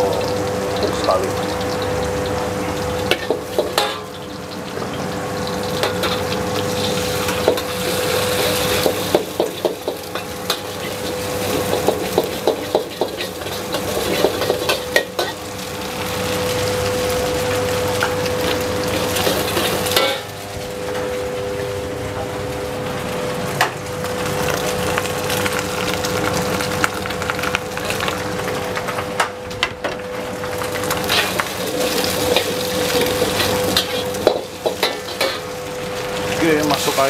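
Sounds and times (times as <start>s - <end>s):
rice sizzling: 0.0s - 37.0s
metal spatula scraping a wok: 31.1s - 35.5s.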